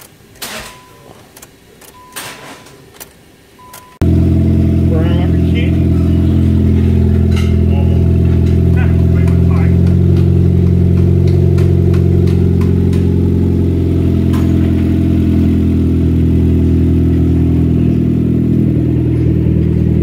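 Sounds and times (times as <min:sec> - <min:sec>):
car engine idling with exhaust leak: 0:04.0 - 0:20.0.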